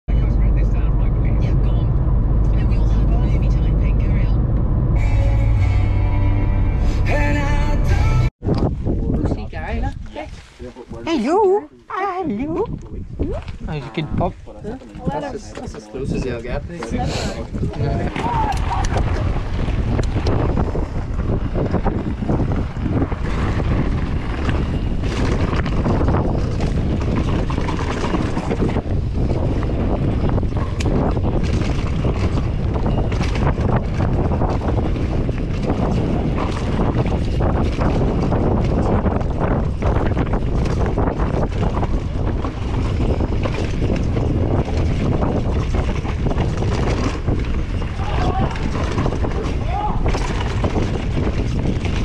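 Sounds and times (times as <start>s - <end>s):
wind buffeting microphone: 0.1s - 7.0s, 8.4s - 52.0s
bike tyre rumble on dirt: 17.4s - 52.0s
bike knocks and rattles: 18.1s - 52.0s.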